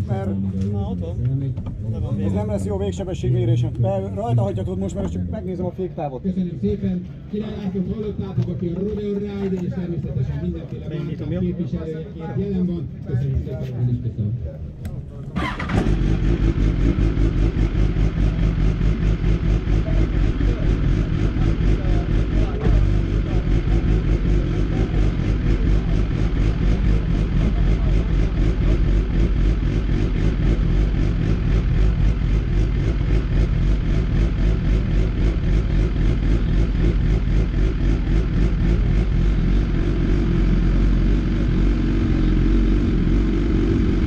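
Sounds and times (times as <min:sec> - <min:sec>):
motorcycle engine idling: 0:14.6 - 0:44.0.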